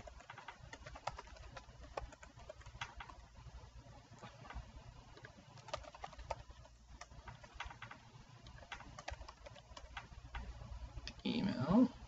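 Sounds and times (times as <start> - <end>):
keyboard keystroke clicks: 5.2 - 10.5.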